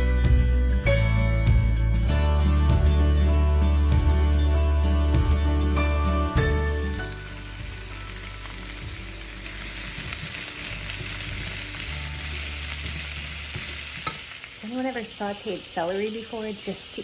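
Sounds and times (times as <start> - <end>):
background music: 0.0 - 14.4
celery sizzling in oil: 6.4 - 17.0.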